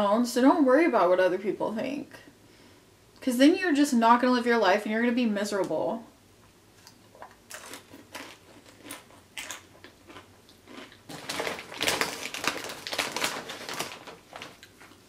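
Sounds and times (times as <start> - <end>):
chewing crunchy chip: 6.8 - 15.0
plastic bag crinkling: 7.5 - 15.0.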